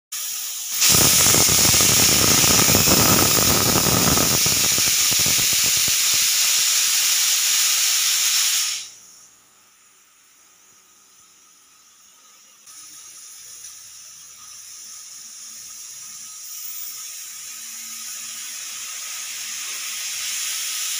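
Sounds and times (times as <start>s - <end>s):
sputtering rattle: 0.2s - 8.9s
pressure cooker whistle hissing: 0.2s - 9.3s, 10.4s - 20.9s.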